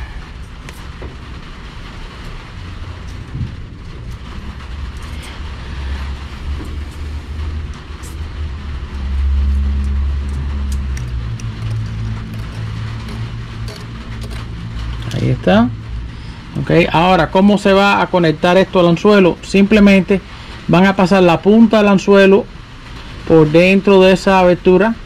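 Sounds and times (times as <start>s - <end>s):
low engine rumble: 0.0s - 25.0s
steady hum: 0.0s - 25.0s
wire being twisted ticks: 8.9s - 15.2s.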